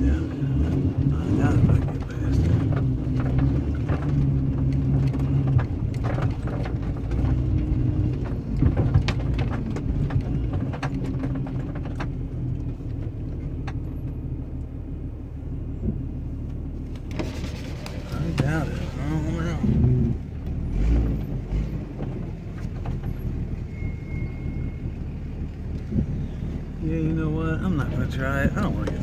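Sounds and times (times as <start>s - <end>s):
engine running at low speed: 0.0s - 29.0s
vehicle body knocks and rattles: 0.5s - 14.3s, 15.7s - 23.8s.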